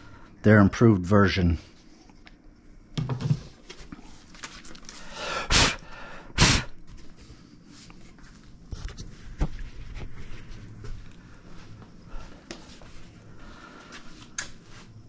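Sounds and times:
puffs of breath: 4.9 - 6.8.

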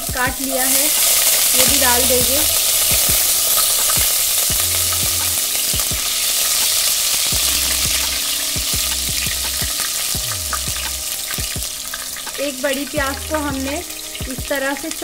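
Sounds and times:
garlic sizzling in hot oil: 0.0 - 15.0.

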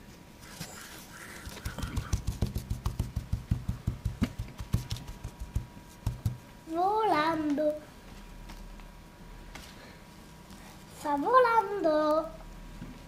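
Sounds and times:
plastic toy feet tapping: 1.4 - 6.4.

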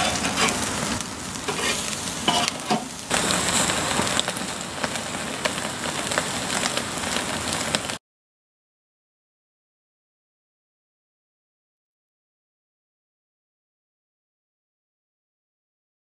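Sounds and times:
metal spatula scraping grill grate: 0.0 - 3.7
burger patties sizzling on grill: 0.0 - 8.0
fat crackling and popping: 0.0 - 8.0.

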